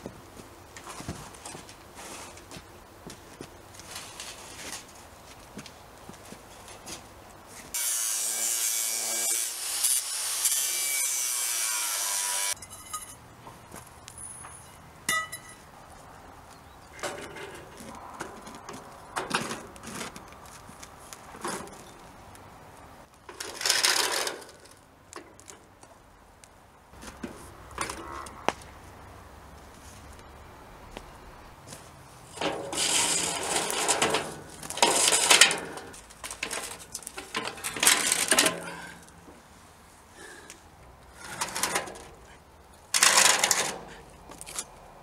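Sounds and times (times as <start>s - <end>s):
light clicks and metal clinks: 12.6s - 13.2s.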